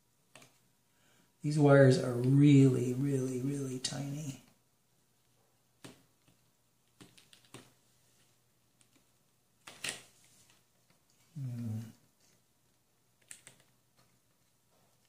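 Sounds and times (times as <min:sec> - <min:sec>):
low voice murmur: 0:11.4 - 0:12.0.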